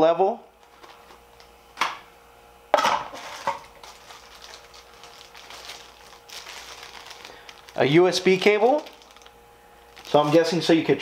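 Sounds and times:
plastic packaging rustling: 0:00.6 - 0:01.4, 0:03.0 - 0:11.0.

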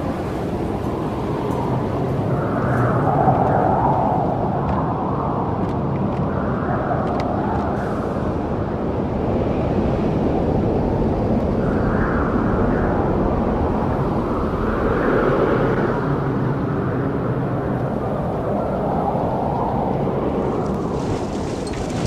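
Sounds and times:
strong wind: 0:00.0 - 0:22.0
choppy water: 0:12.4 - 0:22.0.

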